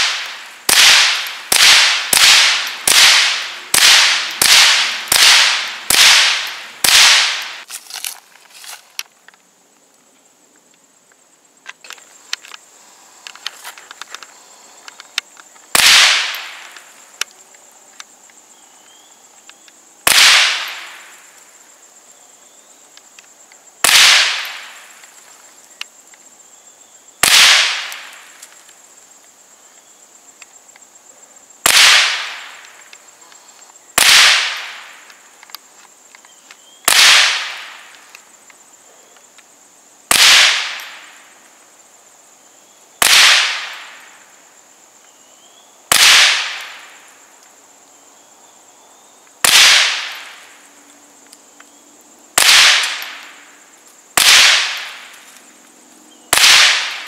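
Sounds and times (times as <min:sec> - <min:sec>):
rifle shots cracking: 0:00.0 - 0:07.6, 0:15.7 - 0:16.8, 0:20.1 - 0:21.0, 0:23.8 - 0:24.8, 0:27.2 - 0:28.2, 0:31.6 - 0:32.7, 0:34.0 - 0:35.0, 0:36.9 - 0:37.9, 0:40.1 - 0:41.1, 0:43.0 - 0:44.0, 0:45.9 - 0:46.9, 0:49.4 - 0:50.4, 0:52.4 - 0:53.4, 0:54.2 - 0:55.2, 0:56.3 - 0:57.0.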